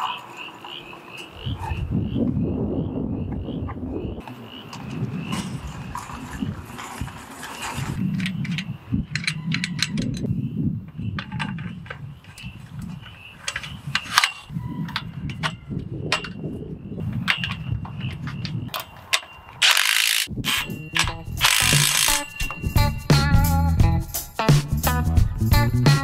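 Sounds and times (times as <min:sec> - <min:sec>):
metal pipe fittings clicking: 0:08.1 - 0:10.3
impact wrench burst: 0:19.6 - 0:20.6, 0:21.4 - 0:22.3.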